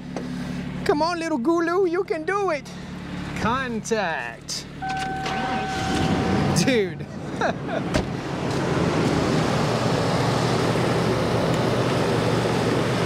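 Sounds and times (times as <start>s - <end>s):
truck engine idling: 0.0s - 13.0s.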